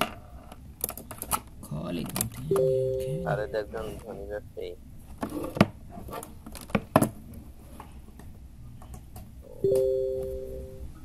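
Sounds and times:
two-note electronic chime: 0:02.5 - 0:03.5, 0:09.6 - 0:10.8.

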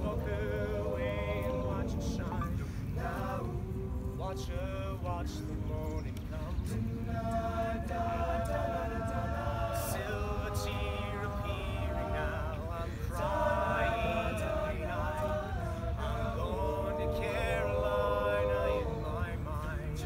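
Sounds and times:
male a cappella group singing: 0:00.0 - 0:20.0.

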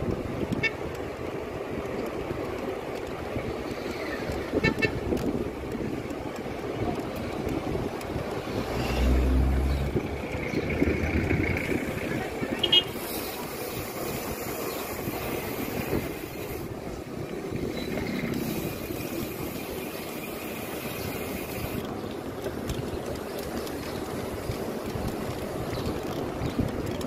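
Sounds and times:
bike tyres rumbling on asphalt: 0:00.0 - 0:27.0
wind on microphone: 0:06.8 - 0:19.8.

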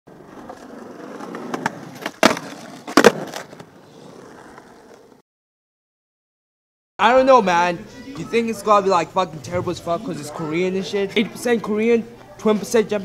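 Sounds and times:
skateboard wheels rolling on concrete: 0:00.1 - 0:05.2
skateboard clacking: 0:00.2 - 0:05.2.

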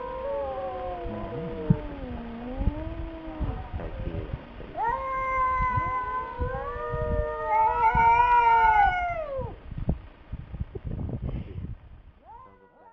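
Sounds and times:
cats yowling: 0:00.0 - 0:09.6, 0:12.2 - 0:12.9.

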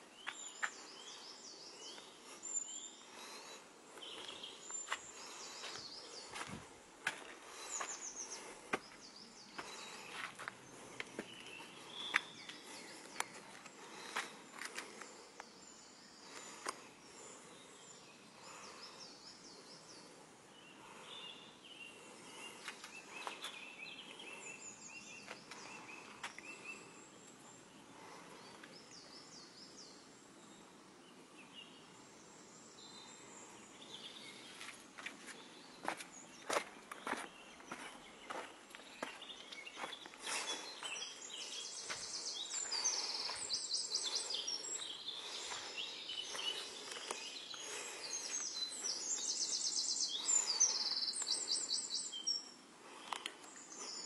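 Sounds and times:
small birds chirping: 0:00.0 - 0:54.0
warbling birdsong: 0:00.0 - 0:54.0
footsteps on concrete and grit: 0:04.2 - 0:08.0, 0:09.6 - 0:11.5.

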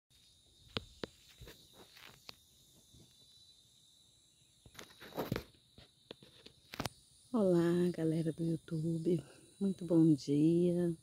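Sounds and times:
rustles and knocks: 0:04.6 - 0:06.9.

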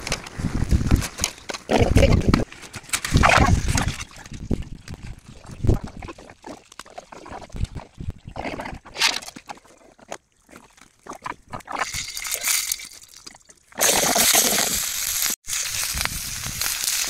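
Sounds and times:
liquid sloshing: 0:03.1 - 0:14.2.

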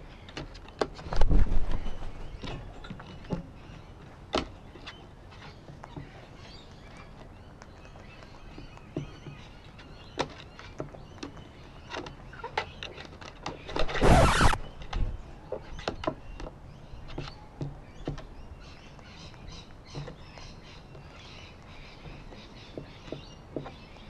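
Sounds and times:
cockatoo screech: 0:13.8 - 0:14.6.

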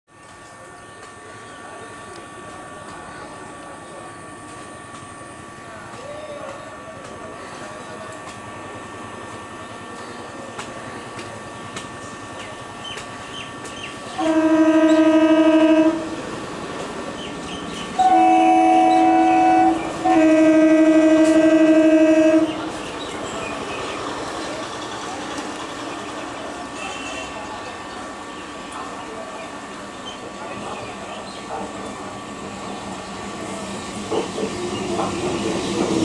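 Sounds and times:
train running: 0:00.1 - 0:36.0
train horn blasts: 0:14.2 - 0:16.2, 0:18.0 - 0:22.7.

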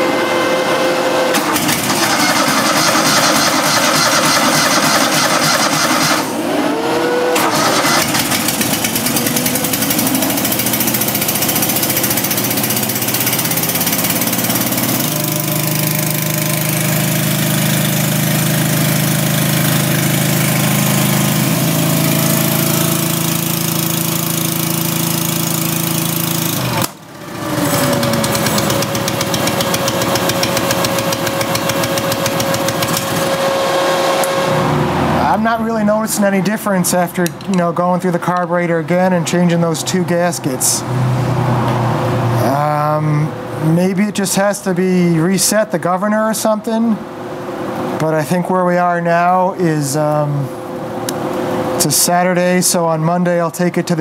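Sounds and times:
v-twin engine running: 0:07.4 - 0:26.9, 0:27.8 - 0:33.3.

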